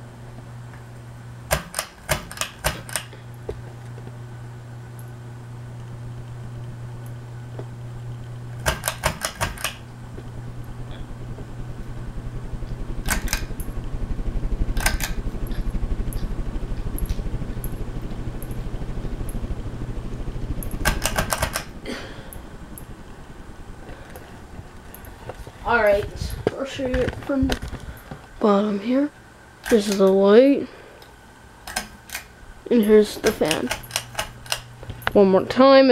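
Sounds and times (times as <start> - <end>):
ceiling fan motor hum: 0.0 - 35.9
rapid clicking: 1.5 - 3.1, 8.6 - 10.3, 11.2 - 28.1, 31.6 - 35.2.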